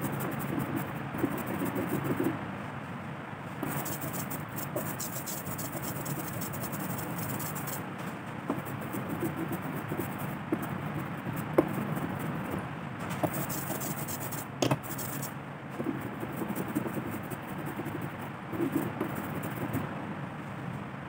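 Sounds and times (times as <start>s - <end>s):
rubber roller rolling through ink: 0.0s - 2.3s, 3.6s - 7.8s, 8.5s - 12.6s, 13.2s - 19.8s.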